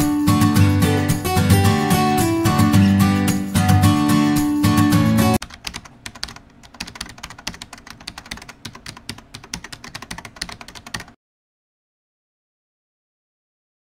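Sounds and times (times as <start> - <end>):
rapid keyboard typing: 5.4 - 11.2.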